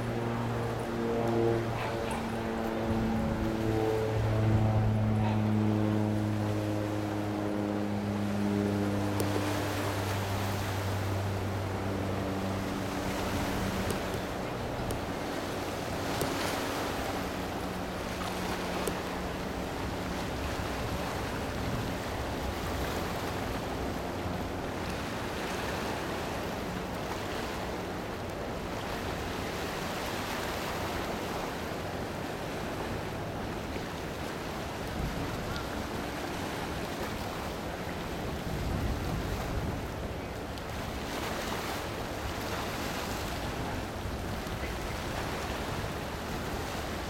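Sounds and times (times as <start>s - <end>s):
low drone of ship: 0.0s - 47.0s
waves washing: 0.0s - 47.0s
wind buffeting microphone: 37.6s - 41.0s.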